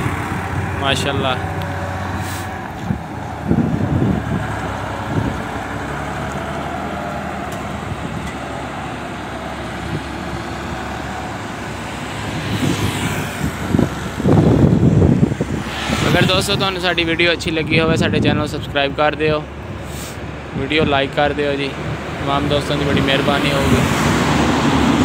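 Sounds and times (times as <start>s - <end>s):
motorcycle passing: 0.0s - 17.7s
tractor diesel engine under load: 0.0s - 25.0s.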